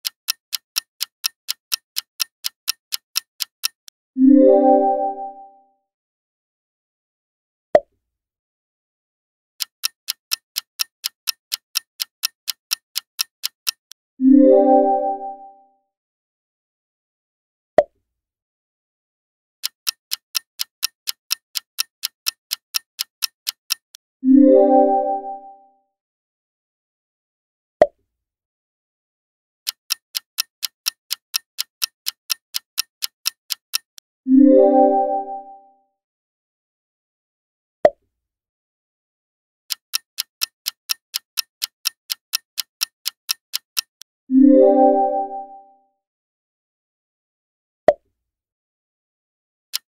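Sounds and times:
sharp click: 0.0 - 3.9, 9.6 - 14.0, 39.7 - 44.1
stopwatch ticking: 0.0 - 4.0, 9.6 - 14.0, 19.6 - 24.0, 29.7 - 34.1, 39.7 - 44.1.

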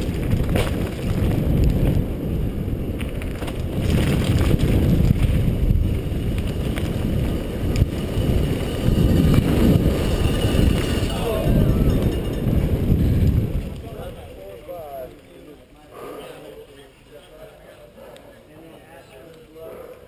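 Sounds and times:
bike knocking over bumps: 0.0 - 11.1
wind buffeting microphone: 0.0 - 15.0
bike tyres rumbling over dirt: 0.0 - 15.3.

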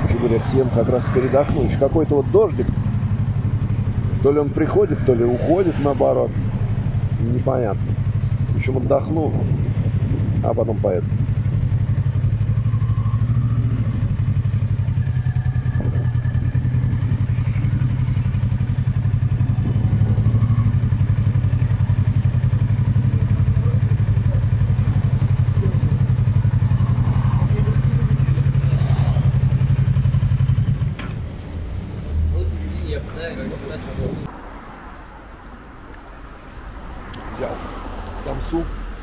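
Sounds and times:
motorcycle engine idling low: 1.6 - 31.5.

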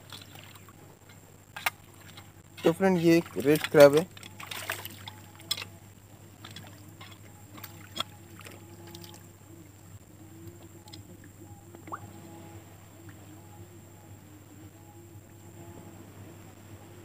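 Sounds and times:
small water splashes: 0.0 - 0.8, 1.6 - 5.6, 6.4 - 9.3
faint steady drone: 0.0 - 17.0.

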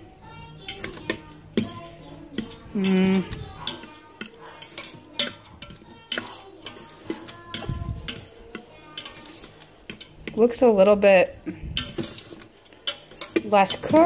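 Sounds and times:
fork scraping metal pot: 0.6 - 10.6, 11.6 - 14.0.

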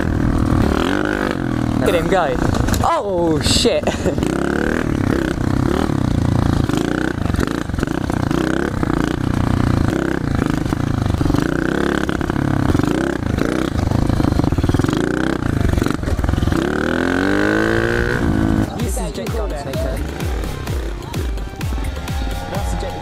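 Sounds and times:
pit bike engine revving: 0.0 - 23.0.

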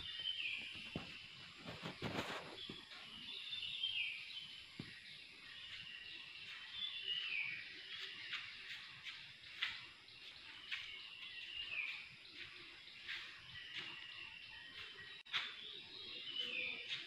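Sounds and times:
brief rustle: 1.0 - 2.8.

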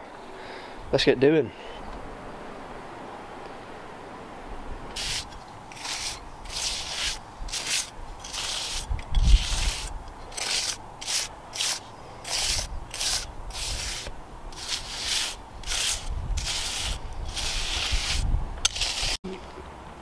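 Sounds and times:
trowel scraping gritty mortar: 5.0 - 19.2.

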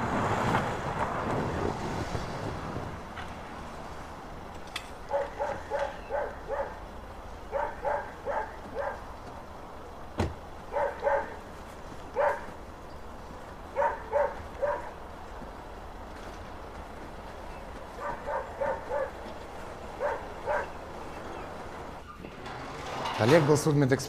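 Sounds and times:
dog barking: 5.1 - 6.8, 7.5 - 9.1, 10.7 - 11.4, 12.2 - 12.6, 13.7 - 15.0, 18.0 - 19.2, 20.0 - 20.8
car door shutting: 10.2 - 10.4.

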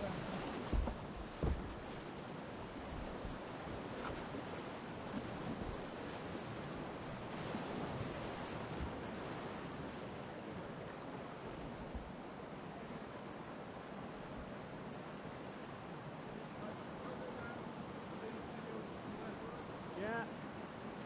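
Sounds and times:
whitewater rushing: 0.0 - 21.0
short low thump: 0.6 - 1.8.

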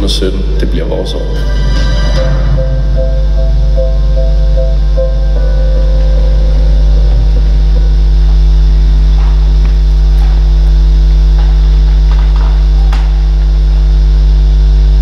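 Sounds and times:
electrical mains hum: 0.0 - 15.0
music from video: 1.2 - 10.6.

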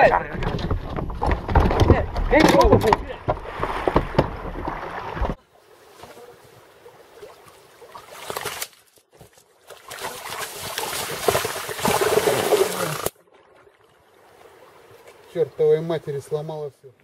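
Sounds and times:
fish thrashing and splashing water: 0.5 - 6.2, 7.0 - 8.9, 9.6 - 15.0.

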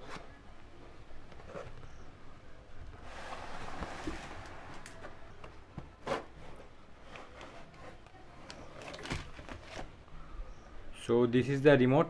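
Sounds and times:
cardboard packaging rubbing: 3.0 - 5.1.

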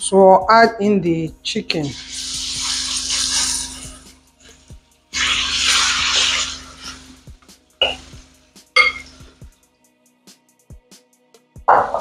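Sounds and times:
background music: 0.0 - 12.0
plate clinking against wok: 8.8 - 9.1.

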